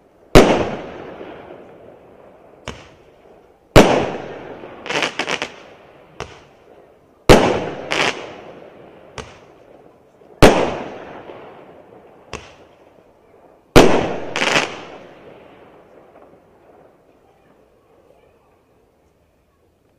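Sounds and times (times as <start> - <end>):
shots bursting in the air: 3.8 - 5.6, 6.2 - 6.5, 7.3 - 8.4, 10.4 - 11.1, 12.3 - 12.7.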